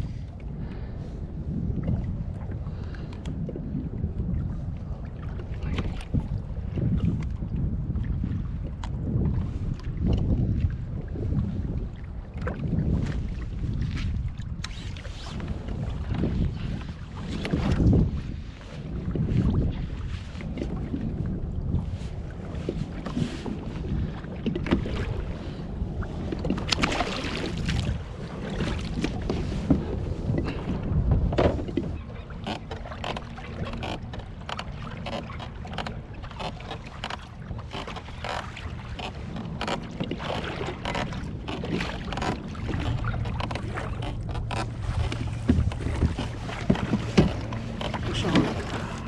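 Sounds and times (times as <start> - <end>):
wind buffeting microphone: 0.0 - 49.0
water slapping against kayak hull: 1.5 - 49.0
knocks and clicks of fishing tackle: 31.2 - 31.8, 32.4 - 49.0.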